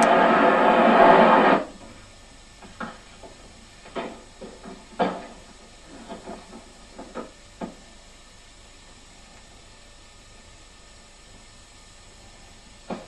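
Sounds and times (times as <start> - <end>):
loud sound cutting off: 0.0 - 1.7
steady hiss: 0.0 - 13.0.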